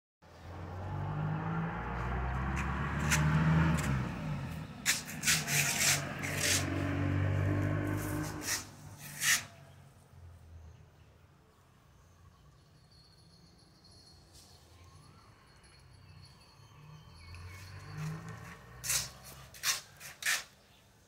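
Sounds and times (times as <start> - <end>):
brushing on microphone: 4.8 - 7.1, 7.8 - 9.6, 18.8 - 20.6.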